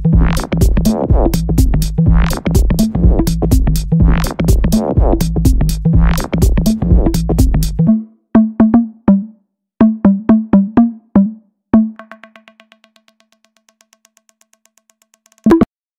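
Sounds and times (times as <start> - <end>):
drum machine hits: 0.0 - 7.9, 11.8 - 13.2
electronic dance track: 0.0 - 12.8.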